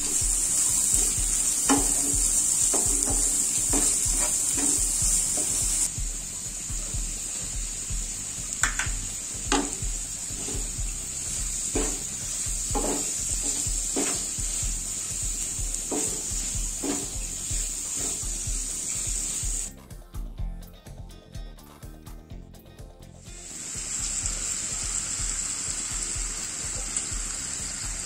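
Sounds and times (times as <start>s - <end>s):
wooden spatula scraping a pan: 0.0s - 5.9s, 11.7s - 14.8s, 15.4s - 19.0s
onions sizzling in hot oil: 0.0s - 19.8s, 23.3s - 28.0s.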